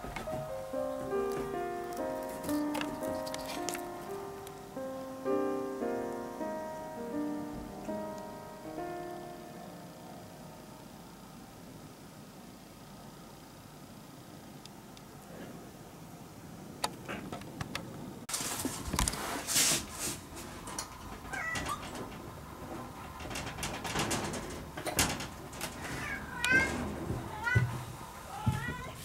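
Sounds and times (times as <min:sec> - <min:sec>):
scattered clicks and knocks: 0:20.4 - 0:28.0
cat meowing: 0:21.3 - 0:21.9, 0:25.8 - 0:26.7, 0:27.3 - 0:27.7, 0:28.3 - 0:29.0.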